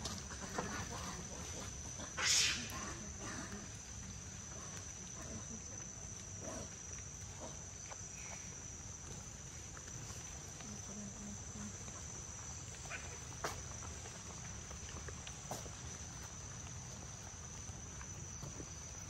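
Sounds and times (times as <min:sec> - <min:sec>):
insects calling high-pitched: 0:00.0 - 0:04.4, 0:10.8 - 0:14.2.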